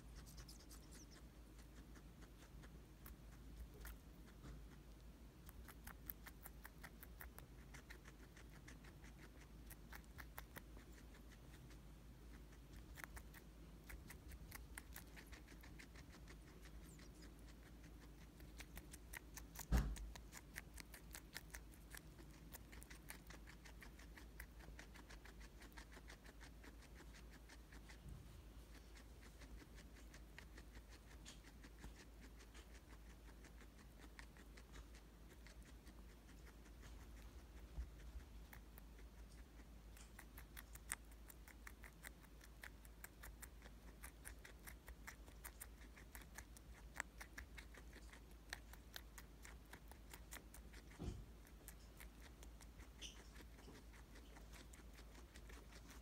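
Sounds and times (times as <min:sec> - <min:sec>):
guinea pig chewing: 0:00.0 - 0:56.0
dull thump: 0:19.6 - 0:20.1.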